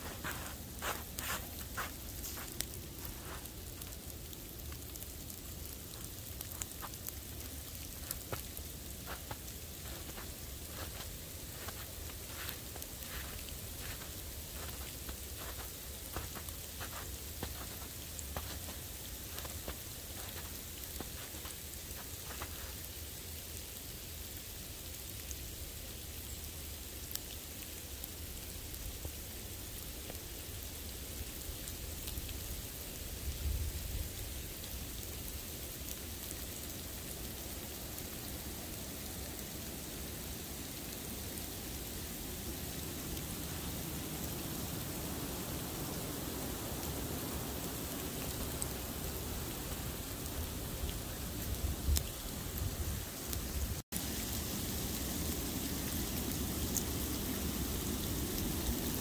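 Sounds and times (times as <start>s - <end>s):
footsteps crunching through snow: 0.0s - 4.1s, 4.9s - 23.0s
outdoor hiss: 0.0s - 59.0s.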